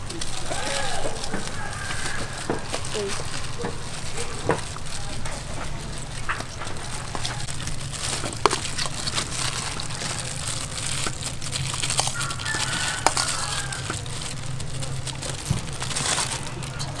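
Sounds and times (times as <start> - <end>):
plastic glove crinkling: 0.0 - 17.0
steady low hum: 0.0 - 17.0.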